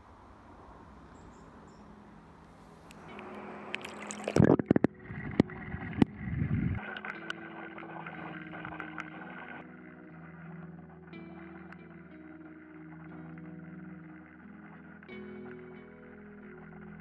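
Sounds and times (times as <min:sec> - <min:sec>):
water splashing and gurgling: 0:02.7 - 0:17.0.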